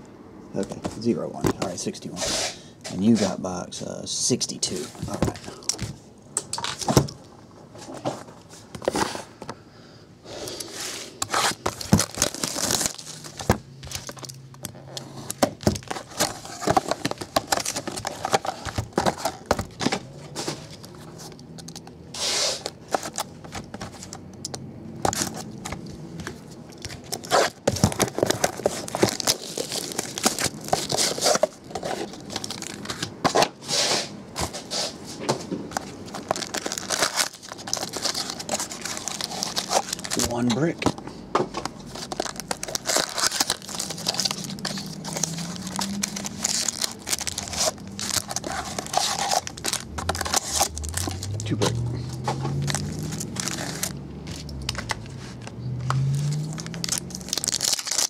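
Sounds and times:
rustles and snaps of card packs: 10.4s - 33.5s, 35.3s - 58.0s
plastic crinkling: 10.5s - 21.9s, 25.0s - 33.2s, 35.7s - 58.0s
plastic wrap being torn: 11.2s - 19.6s, 27.0s - 32.9s, 36.0s - 40.5s, 41.8s - 51.8s, 52.5s - 54.9s, 56.1s - 58.0s.

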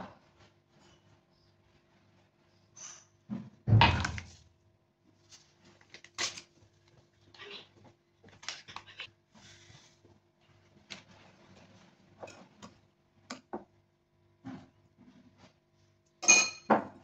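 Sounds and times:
paper sachet crinkling and tearing: 5.8s - 6.6s.

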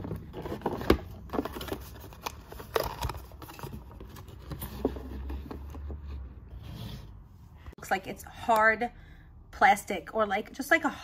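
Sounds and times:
cardboard box folding: 0.0s - 5.9s.

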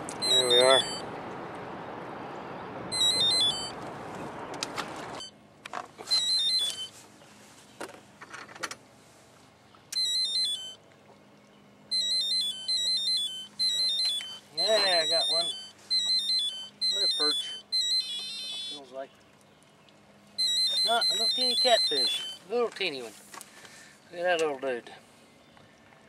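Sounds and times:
electronic chirping beeps: 0.2s - 1.0s, 2.9s - 3.8s, 6.1s - 6.9s, 10.0s - 10.8s, 11.9s - 18.8s, 20.4s - 22.4s.

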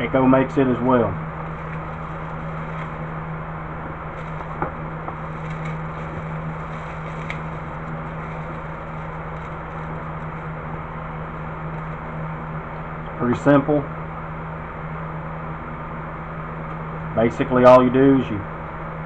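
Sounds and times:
steady low hum: 0.0s - 19.0s
bubble wrap rustling: 1.3s - 12.6s
small crackly clicks: 5.4s - 6.2s, 6.8s - 10.5s.

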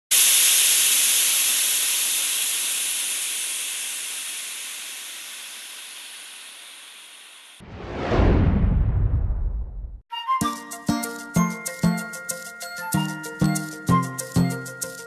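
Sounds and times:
steam hissing from a pot: 0.1s - 7.6s.

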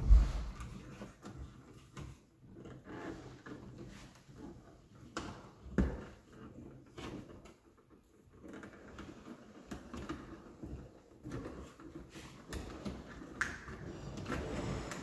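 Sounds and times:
loud thump: 0.0s - 0.6s.

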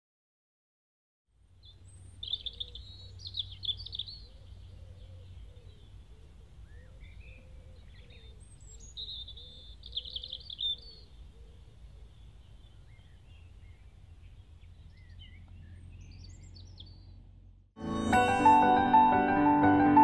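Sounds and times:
songbird trilling: 1.6s - 17.2s
soft low repeated notes: 17.8s - 20.0s.

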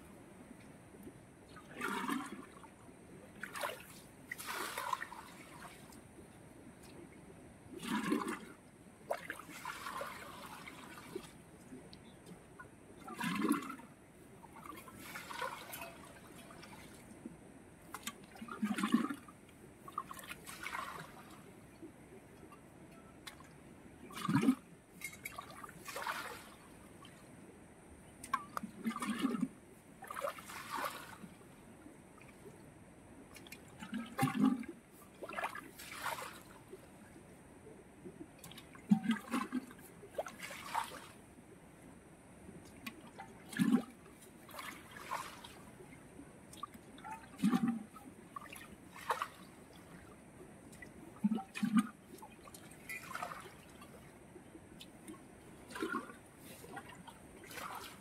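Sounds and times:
pot scooping water: 1.8s - 2.4s, 7.8s - 8.5s, 13.1s - 13.8s, 24.2s - 26.4s, 33.4s - 36.5s, 38.4s - 41.1s, 46.6s - 49.4s, 51.2s - 53.7s, 54.8s - 58.0s
splash of thrown water: 3.5s - 5.4s.

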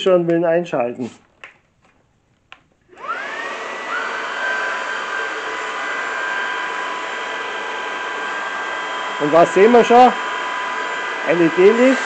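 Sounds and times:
vacuum motor whine: 2.9s - 12.0s.

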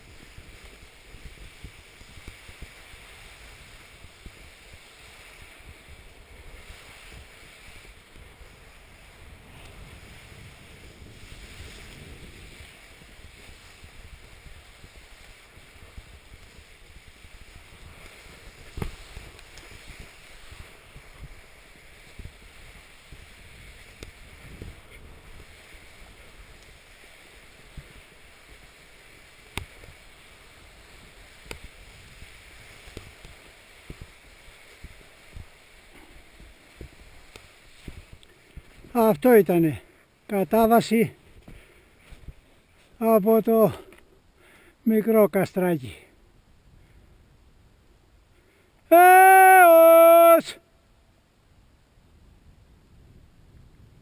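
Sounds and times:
skis hissing over snow: 0.0s - 47.5s, 48.2s - 50.6s
wind buffeting microphone: 3.4s - 26.6s.

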